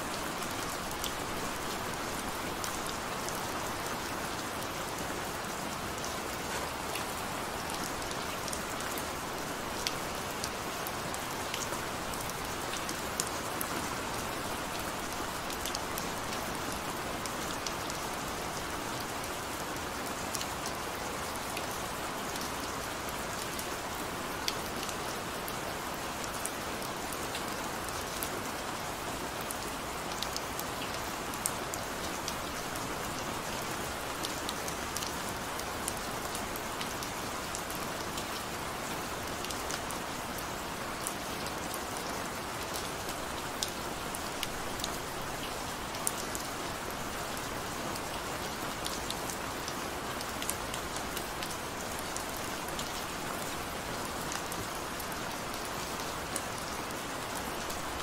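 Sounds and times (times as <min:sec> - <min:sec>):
gentle rain falling: 0:00.0 - 0:58.0.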